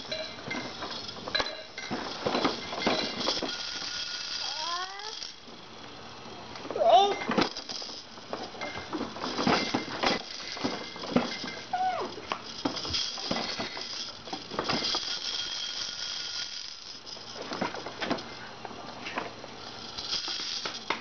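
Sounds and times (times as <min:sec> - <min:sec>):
plastic toys clicking and rattling: 0:00.0 - 0:05.5, 0:06.7 - 0:18.4, 0:19.1 - 0:21.0
short high voice sound: 0:04.4 - 0:05.1, 0:06.8 - 0:07.3.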